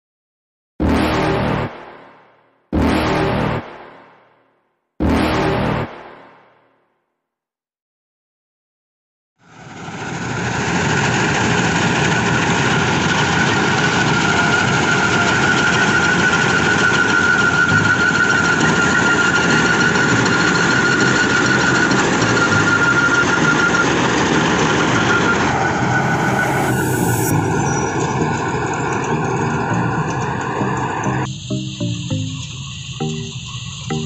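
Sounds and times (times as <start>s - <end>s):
combine harvester engine drone: 9.5s - 34.0s
high machinery whine: 9.5s - 34.0s.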